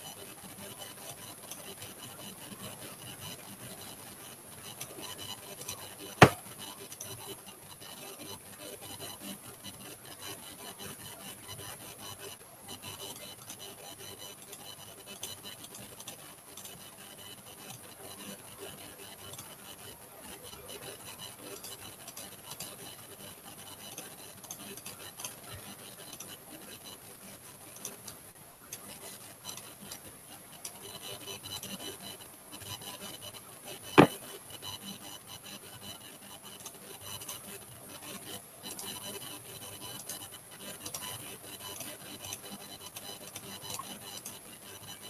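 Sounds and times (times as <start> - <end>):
mouse clicks and rubbing: 34.0 - 34.2.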